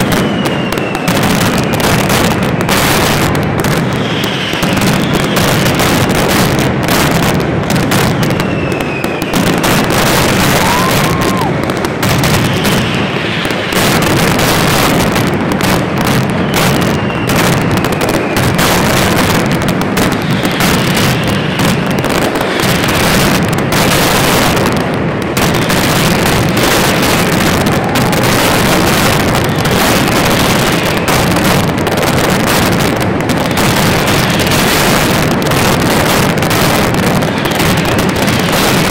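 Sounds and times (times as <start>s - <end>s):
gliding firework whistles: 0.0s - 6.1s, 8.0s - 14.9s, 16.2s - 19.0s, 20.2s - 24.6s, 25.6s - 31.7s
firecracker bangs: 0.0s - 38.9s.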